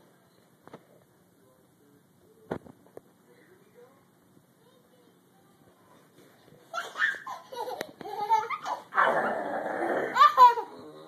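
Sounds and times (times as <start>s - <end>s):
child laughing: 6.7s - 9.0s, 10.0s - 11.0s.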